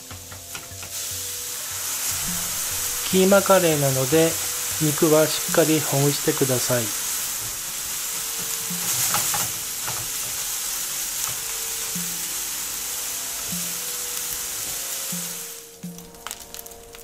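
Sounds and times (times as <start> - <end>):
meat sizzling in a skillet: 0.0 - 17.0
wooden spatula scraping: 0.6 - 11.4.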